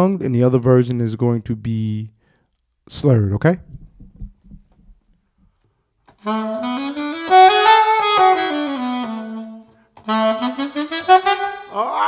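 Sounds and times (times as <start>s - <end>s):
alto saxophone playing a scale: 6.2s - 12.0s.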